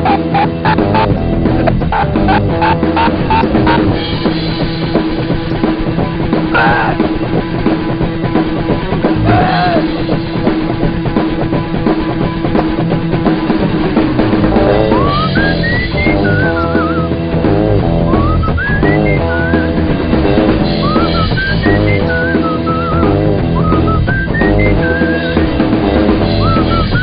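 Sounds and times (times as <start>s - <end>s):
rock music with drums: 0.0s - 27.0s.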